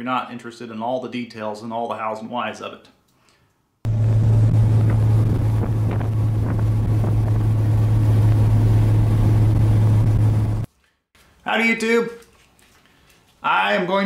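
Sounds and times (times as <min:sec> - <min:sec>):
low engine drone: 0:03.9 - 0:10.7
wind buffeting microphone: 0:03.9 - 0:10.7.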